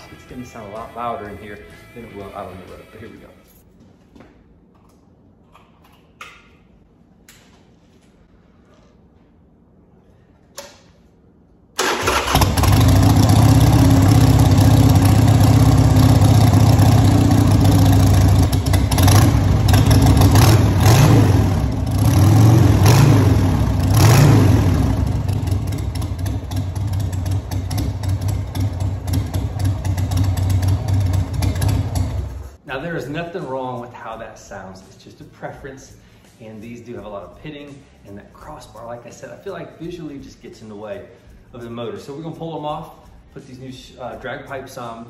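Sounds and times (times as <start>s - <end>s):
motorcycle engine revving and idling: 12.0s - 32.6s.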